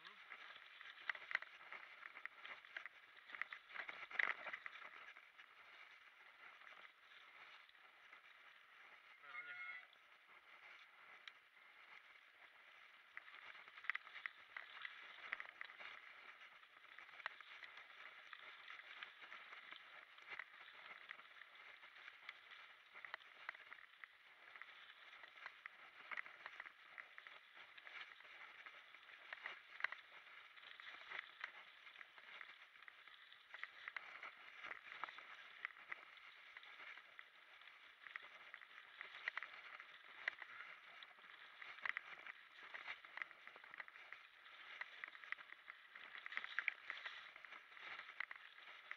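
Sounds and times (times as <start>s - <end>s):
bike tyres rustling over gravel: 0.0s - 48.9s.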